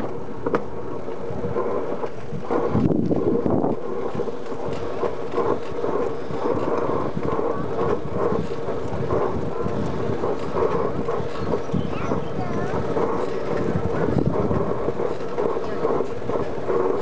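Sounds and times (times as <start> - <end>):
steel wheels rolling on track: 0.0 - 17.0.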